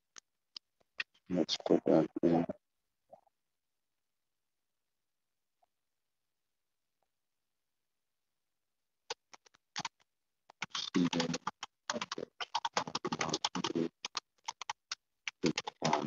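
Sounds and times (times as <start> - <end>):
typing on computer keyboard: 9.1 - 16.0.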